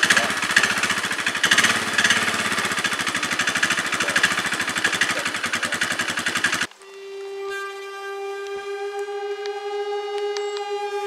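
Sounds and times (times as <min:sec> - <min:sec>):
atv engine idling: 0:00.0 - 0:06.7.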